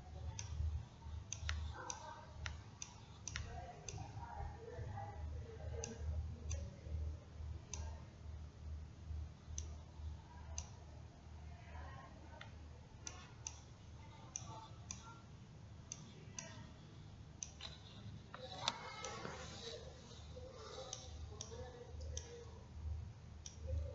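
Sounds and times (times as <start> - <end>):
steady low hum: 0.0 - 23.9
computer mouse clicking: 0.2 - 4.4, 10.5 - 10.8, 12.3 - 15.2, 17.4 - 22.6.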